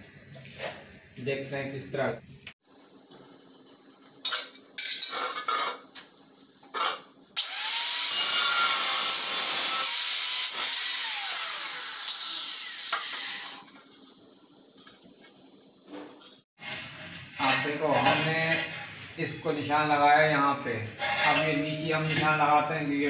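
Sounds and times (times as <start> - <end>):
angle grinder cutting tile: 6.8 - 13.7.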